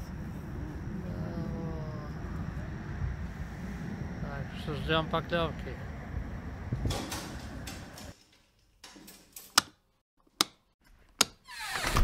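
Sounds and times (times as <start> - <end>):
wind rumble on microphone: 0.0 - 8.1.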